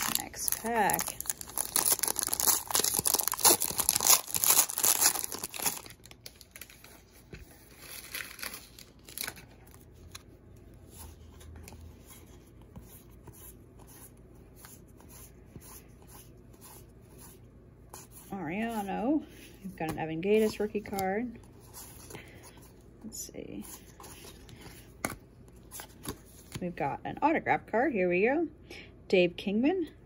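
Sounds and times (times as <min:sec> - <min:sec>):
foil wrapper torn open crinkling: 0:00.0 - 0:07.0, 0:07.7 - 0:10.2
cards flicked and rustled by hand: 0:23.8 - 0:26.6.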